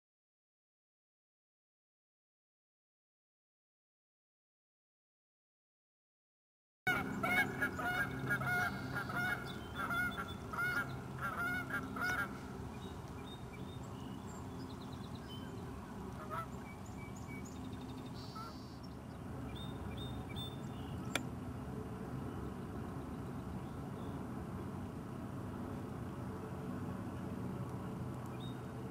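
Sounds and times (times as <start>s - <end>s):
geese honking: 6.9s - 12.5s, 16.1s - 16.6s.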